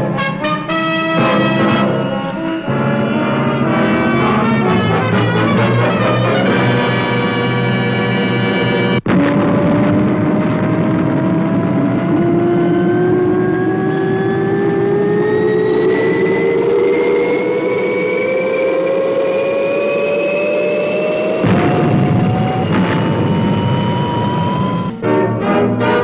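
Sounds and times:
rocket engine rushing with rising whine: 8.8 - 25.0.

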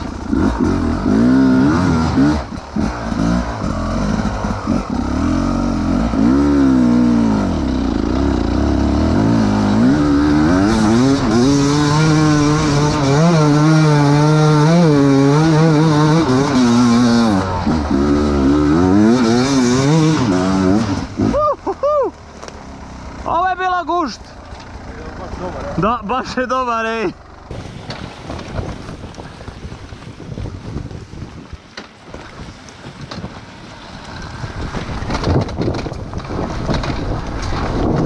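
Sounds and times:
dirt bike engine revving: 0.0 - 21.6.

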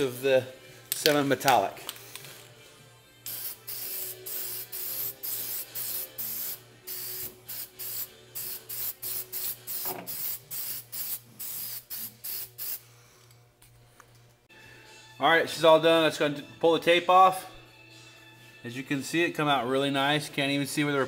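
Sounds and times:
aerosol spray can hissing: 3.3 - 12.8.

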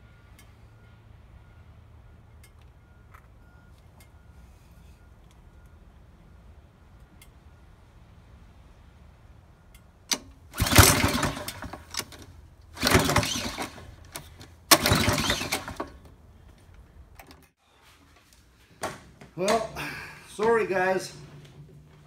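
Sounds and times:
engine pull-start turning over: 10.1 - 16.1.

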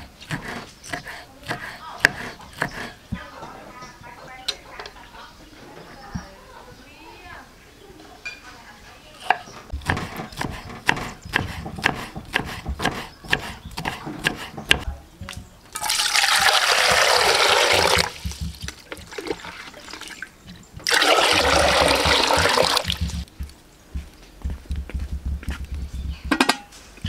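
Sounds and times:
cleaver chopping on wooden board: 0.3 - 3.2, 9.3 - 15.5, 20.8 - 24.1
water boiling hard in pot: 15.8 - 20.2, 20.8 - 23.3.

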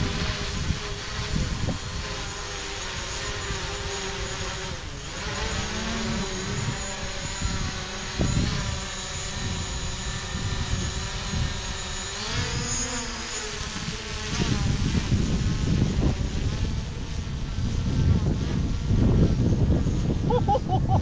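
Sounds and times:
drone propellers whining: 0.0 - 21.0
wind rumbling on microphone: 0.0 - 21.0.

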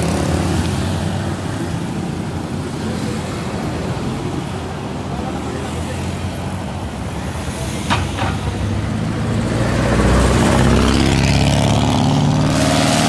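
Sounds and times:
road traffic passing: 0.0 - 13.0
heavy engine approaching: 7.6 - 13.0.

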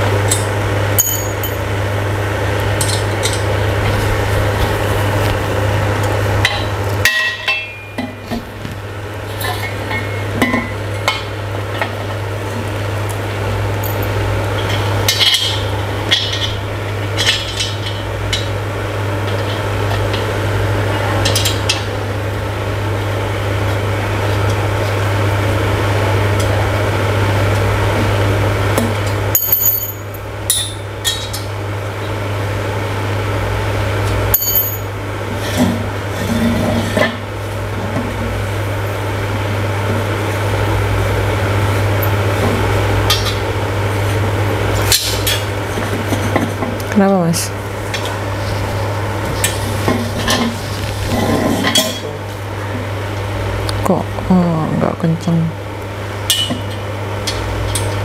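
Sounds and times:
steady low hum: 0.0 - 58.0
metal clinks and knocks: 1.0 - 1.6.

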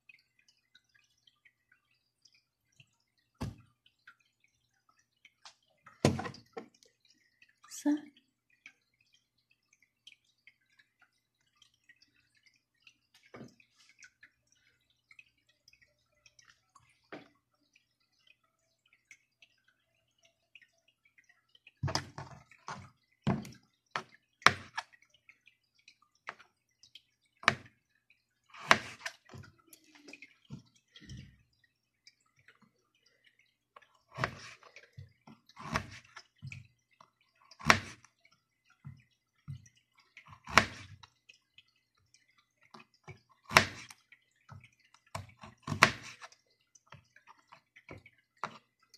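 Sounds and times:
knife chopping carrot on plastic board: 35.6 - 36.1.

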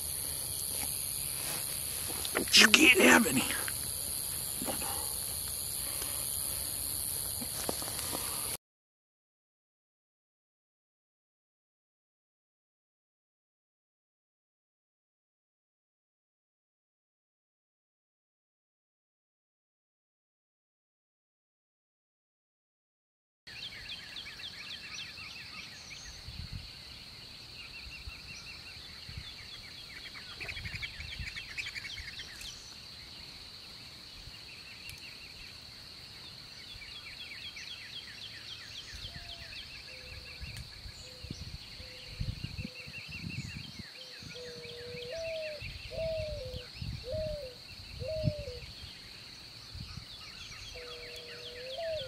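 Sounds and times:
songbirds chirping in trills: 23.5 - 52.0
low bird call: 50.3 - 52.0.

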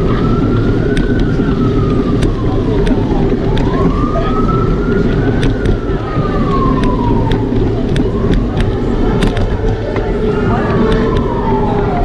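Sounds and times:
low street noise: 0.0 - 12.0
siren wailing: 0.0 - 12.0.

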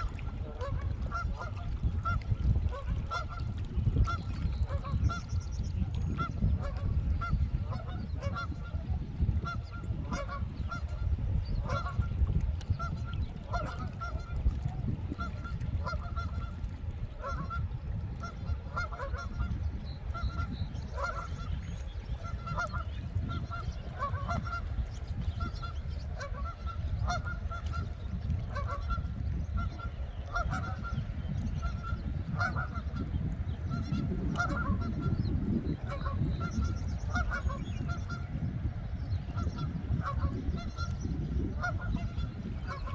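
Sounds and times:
geese honking: 0.0 - 5.2, 6.2 - 8.8, 9.4 - 12.1, 12.8 - 14.4, 15.2 - 16.5, 18.2 - 19.5, 20.1 - 24.8, 25.4 - 31.0, 31.6 - 33.1, 33.7 - 35.2, 35.8 - 38.4, 39.4 - 40.9, 41.6 - 42.9.

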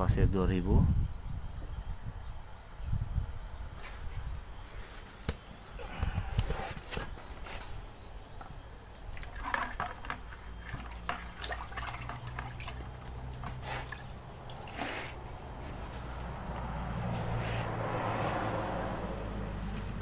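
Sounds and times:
watery sanding scuffs: 13.4 - 16.0, 17.0 - 18.8.

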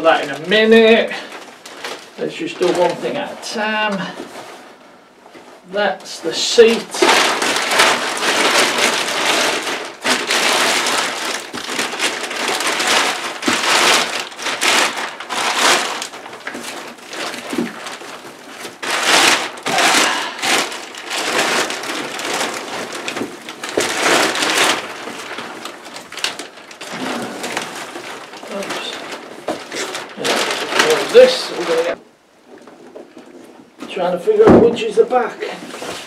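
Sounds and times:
plastic packaging crinkling: 0.0 - 36.0.

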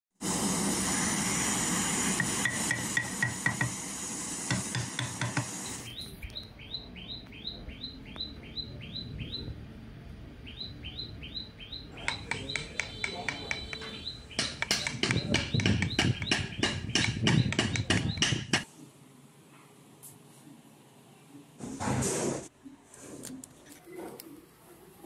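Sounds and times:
gas torch flame hissing: 0.2 - 6.0
bird chirping: 5.6 - 9.6, 10.4 - 18.6.

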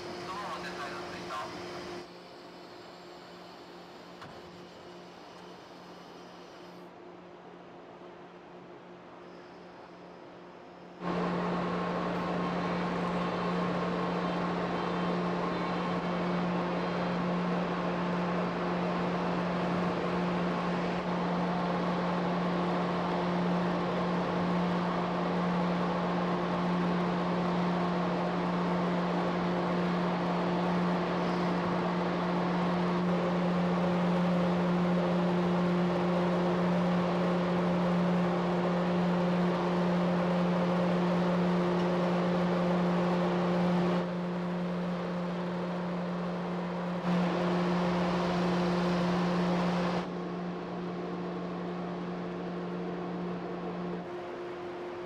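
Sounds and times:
ferry machinery humming: 0.0 - 6.9, 9.0 - 55.0
broad rushing noise: 11.0 - 50.4.

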